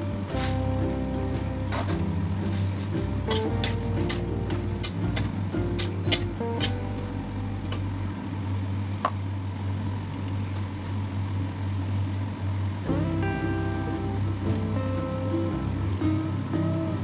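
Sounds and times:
background music: 0:00.0 - 0:08.2, 0:12.8 - 0:17.0.

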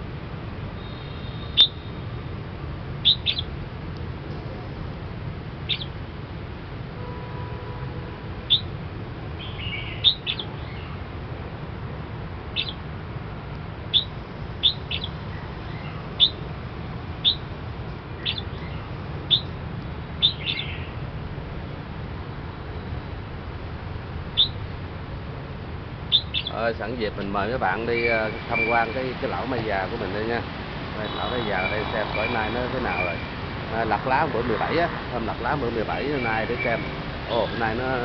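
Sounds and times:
bird high chirps: 0:00.8 - 0:02.0, 0:03.0 - 0:03.5, 0:05.7 - 0:06.0, 0:08.5 - 0:08.7, 0:09.4 - 0:11.0, 0:12.6 - 0:12.8, 0:13.9 - 0:16.5, 0:17.2 - 0:17.5, 0:18.2 - 0:19.6, 0:20.2 - 0:21.0, 0:24.4 - 0:24.6, 0:26.1 - 0:26.6, 0:27.4 - 0:29.1, 0:31.0 - 0:33.3, 0:36.0 - 0:37.6.

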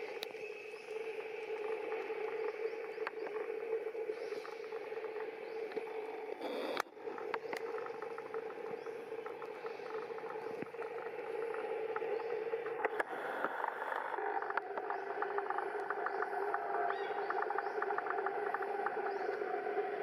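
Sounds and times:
outdoor background hum: 0:00.0 - 0:20.0
small clicks: 0:05.7 - 0:19.4.

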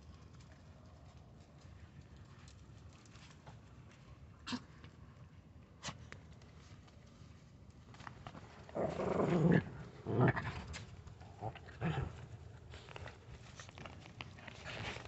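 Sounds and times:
puppy growling: 0:08.7 - 0:12.9.

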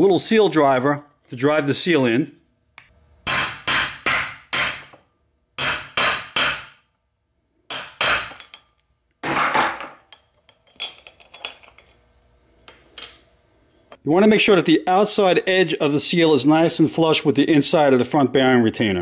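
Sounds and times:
hammer striking metal: 0:02.8 - 0:05.0, 0:05.6 - 0:06.9, 0:07.7 - 0:10.2.

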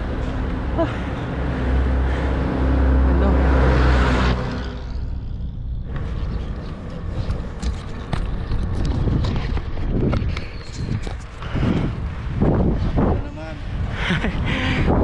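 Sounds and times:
wind rumble on microphone: 0:04.3 - 0:15.0
bicycle clicks and rattles: 0:06.0 - 0:11.3.

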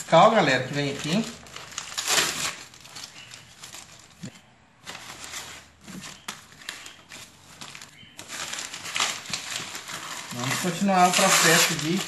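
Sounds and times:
paper rustling and crackling: 0:00.0 - 0:12.0.

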